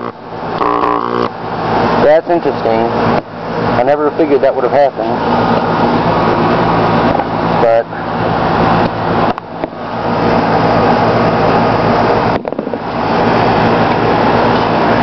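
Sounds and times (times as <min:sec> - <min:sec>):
electric arc buzzing and hissing: 0:00.0 - 0:01.4
mains hum: 0:00.0 - 0:01.4.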